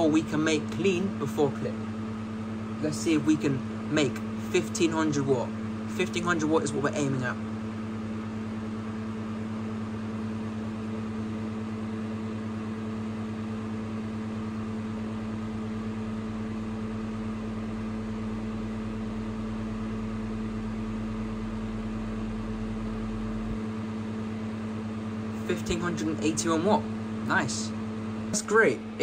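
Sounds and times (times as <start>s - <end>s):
steady electrical hum: 0.0s - 29.0s
deeper low hum: 15.3s - 29.0s.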